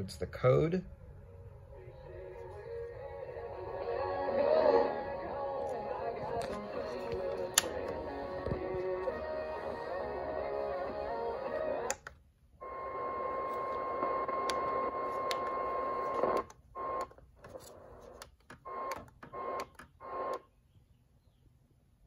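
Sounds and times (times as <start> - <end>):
radio static hiss: 1.6 - 12.0, 12.6 - 20.4.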